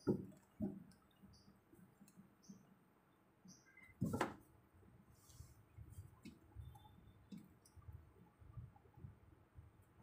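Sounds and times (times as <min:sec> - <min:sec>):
soft bumps and ticks on wood: 0:00.0 - 0:01.0.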